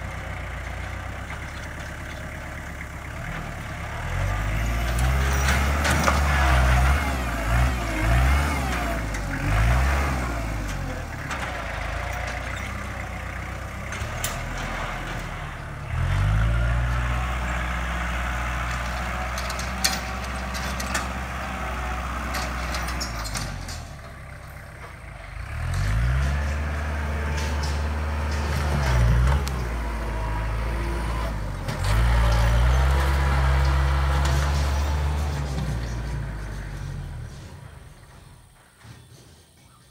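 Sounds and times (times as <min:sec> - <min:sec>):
tractor diesel engine revving: 0:00.0 - 0:38.6.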